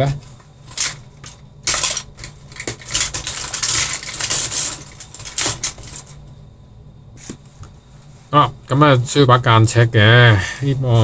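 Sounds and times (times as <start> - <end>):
desk objects rustling and clattering: 0.0 - 6.3.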